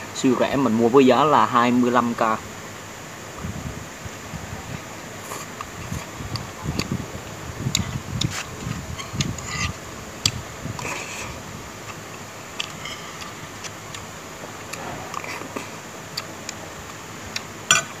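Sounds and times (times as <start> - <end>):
steady background hiss: 0.0 - 18.0
person chewing: 5.2 - 7.0, 7.7 - 18.0.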